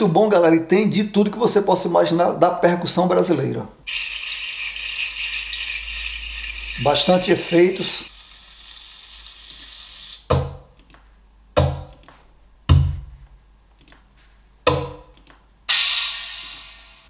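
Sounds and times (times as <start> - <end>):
drum hits: 10.3 - 10.7, 11.6 - 11.9, 12.7 - 13.2, 14.7 - 15.1
bright noisy percussion hit: 15.7 - 17.0.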